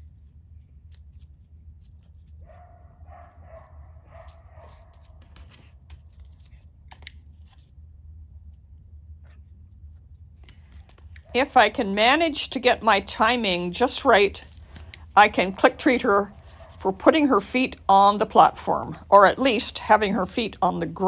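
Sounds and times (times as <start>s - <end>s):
small dog barking: 2.4s - 5.1s, 16.3s - 16.8s.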